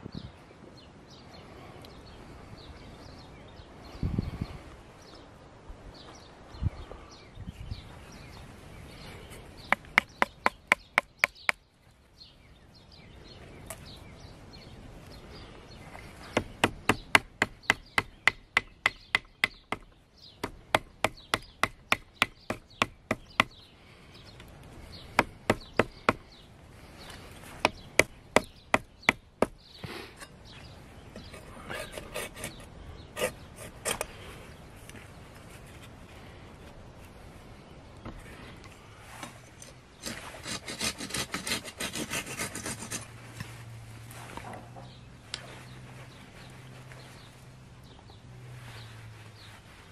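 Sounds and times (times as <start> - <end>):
wood striking wooden peg: 9.7 - 11.6, 16.4 - 23.5, 25.2 - 26.2, 27.6 - 29.6.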